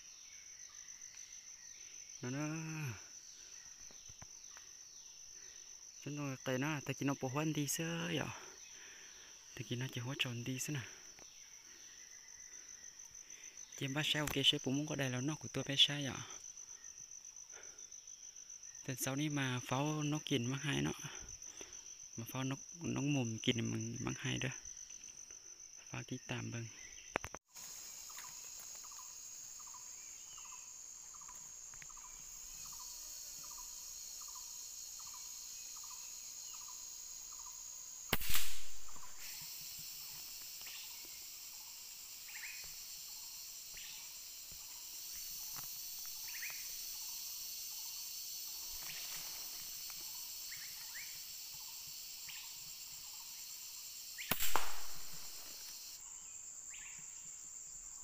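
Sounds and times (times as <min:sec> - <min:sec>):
insects chirring: 0:00.0 - 0:58.0
gunshots with echo: 0:38.2 - 0:39.1, 0:54.3 - 0:55.4.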